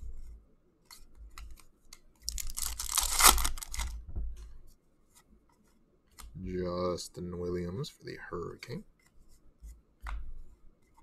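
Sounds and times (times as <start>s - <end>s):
cards rustling: 0.8s - 4.0s.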